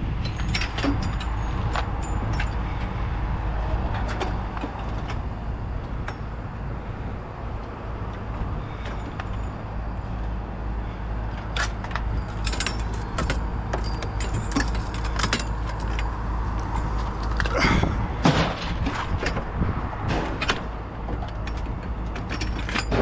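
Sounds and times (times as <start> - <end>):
rattles and knocks: 0.0 - 6.6, 7.5 - 10.4, 11.3 - 23.0
vehicle engine rumble: 0.0 - 23.0.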